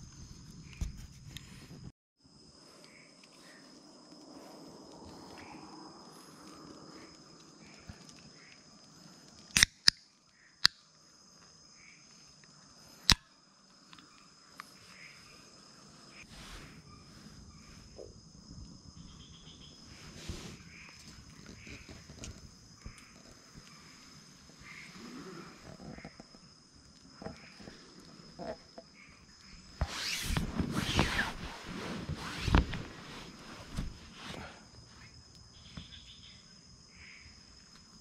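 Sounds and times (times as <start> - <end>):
insects chorus: 0.0 - 38.0
loud sharp clicks: 9.4 - 10.8.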